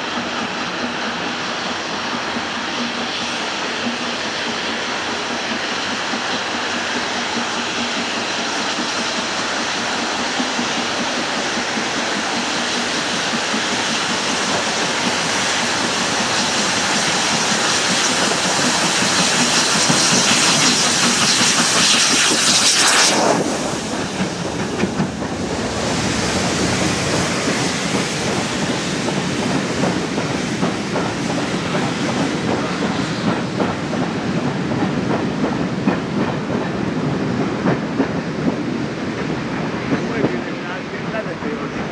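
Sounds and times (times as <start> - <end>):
loud hiss of steam: 0.0 - 41.9
train wheels clattering: 0.0 - 41.9.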